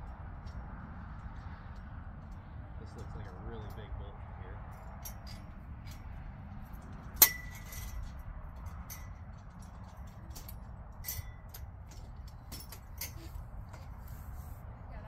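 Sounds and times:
metal tubes clinking: 0.0 - 14.0
loud ringing metal clank: 7.2 - 8.0.

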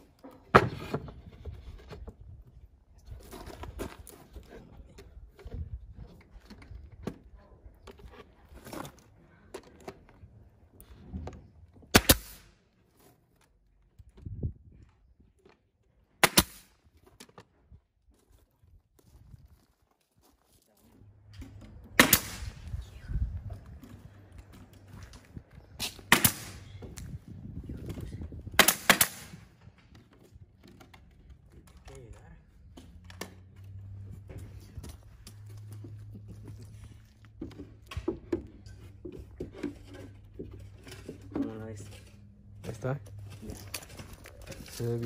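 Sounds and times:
brad nailer firing: 11.9 - 12.5, 16.2 - 16.7, 21.9 - 22.6, 25.8 - 26.7, 28.6 - 29.5.

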